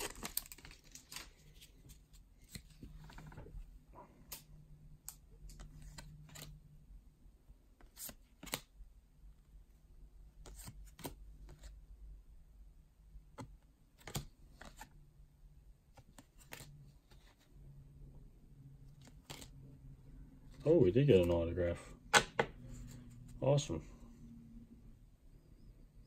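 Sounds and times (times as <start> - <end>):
trading cards being flipped: 5.1 - 6.6, 7.8 - 8.7, 10.4 - 11.7, 13.4 - 14.9, 16.0 - 17.4, 18.9 - 19.6.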